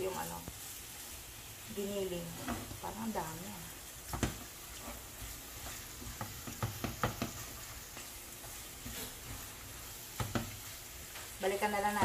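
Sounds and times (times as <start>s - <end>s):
food sizzling in a pan: 0.0s - 12.0s
spatula knocking against pan: 6.1s - 7.4s, 10.2s - 10.6s.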